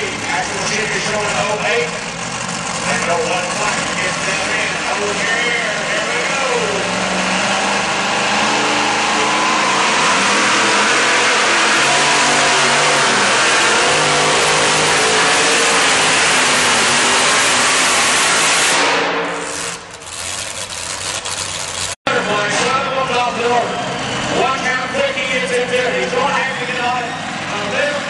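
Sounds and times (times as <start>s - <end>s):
truck engine running under load: 0.0s - 18.8s, 19.4s - 28.0s.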